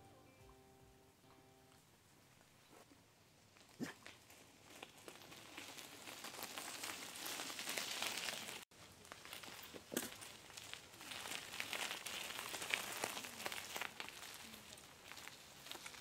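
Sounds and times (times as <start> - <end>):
bicycle tyres crunching on gravel: 3.5 - 16.0.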